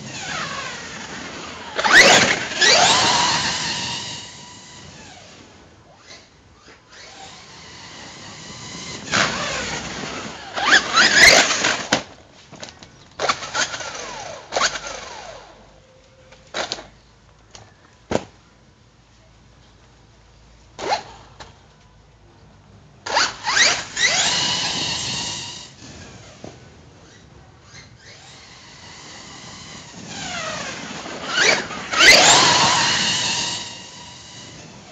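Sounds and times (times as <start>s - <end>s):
electric motor whining: 0.0s - 5.4s, 6.9s - 11.9s, 23.1s - 26.4s, 27.7s - 34.9s.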